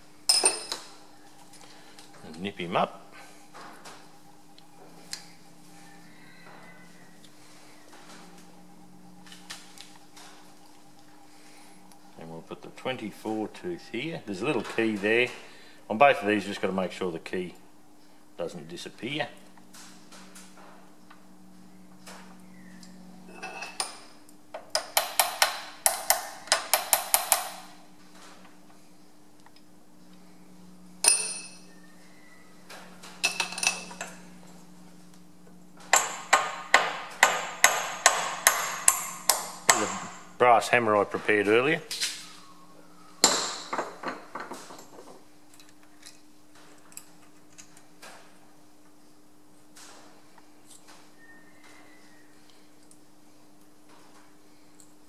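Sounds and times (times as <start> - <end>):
low steady hum: 0.0 - 55.0.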